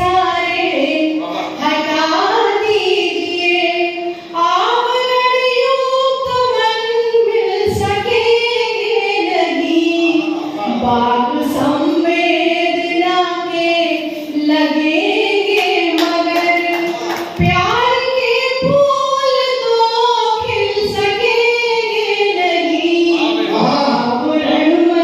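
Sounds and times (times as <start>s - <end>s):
woman singing unaccompanied: 0.0s - 25.0s.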